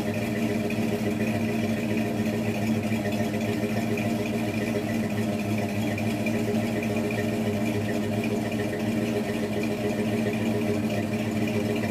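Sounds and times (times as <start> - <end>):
car engine idling: 0.0 - 11.9.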